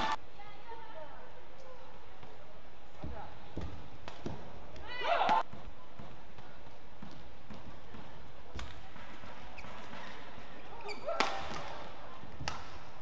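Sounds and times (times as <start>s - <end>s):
shoes squeaking on court: 5.5s - 11.7s
rackets striking shuttlecock: 11.1s - 12.9s.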